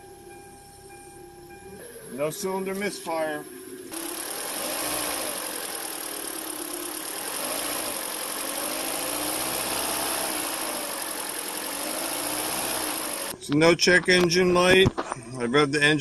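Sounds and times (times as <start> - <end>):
car engine revving: 3.9 - 13.4.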